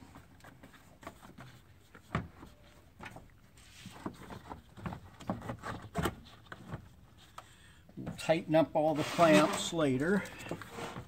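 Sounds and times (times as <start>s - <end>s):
plastic knocks and rustles: 0.0s - 7.0s.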